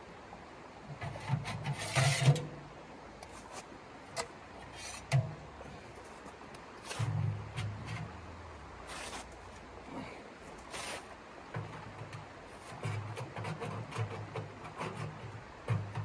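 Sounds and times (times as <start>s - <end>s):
metal scraping: 1.0s - 2.6s, 4.2s - 5.4s, 6.8s - 9.4s.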